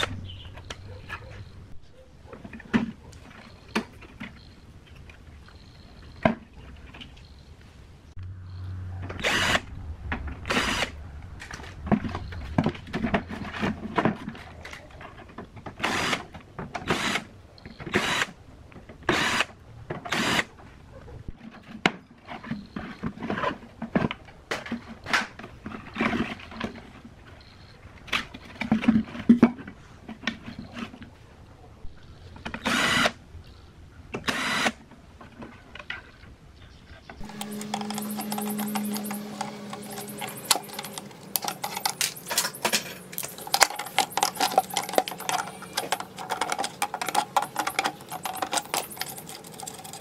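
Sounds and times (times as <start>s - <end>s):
cordless drill bursts: 9.2s - 9.6s, 15.8s - 16.2s, 16.9s - 17.3s, 17.9s - 18.3s, 19.1s - 19.5s, 20.1s - 20.5s, 32.6s - 33.2s, 34.2s - 34.8s
handling clatter: 37.2s - 50.0s
sheet metal scraping: 37.2s - 50.0s.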